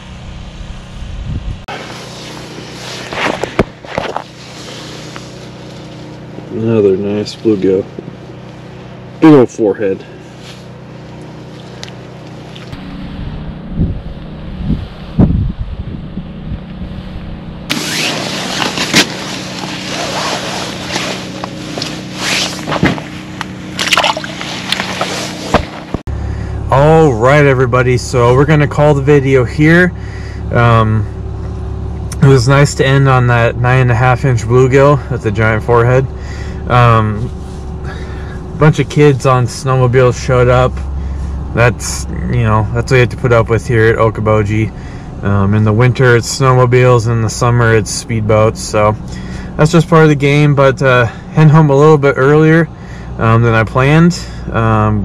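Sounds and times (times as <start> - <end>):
low engine-like hum: 0.0 - 55.0
wind buffeting microphone: 1.0 - 1.6, 13.0 - 17.4
hands rustling a jacket: 1.7 - 6.4, 17.7 - 26.0.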